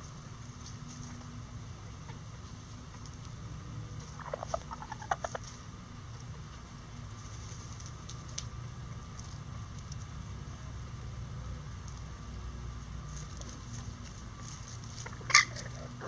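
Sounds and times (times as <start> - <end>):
low background rumble: 0.0 - 16.0
chicken clucking: 4.0 - 5.6, 14.9 - 16.0.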